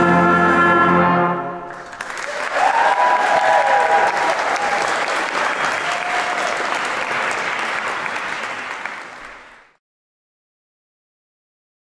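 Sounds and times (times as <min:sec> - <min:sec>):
audience applauding: 0:01.6 - 0:09.8.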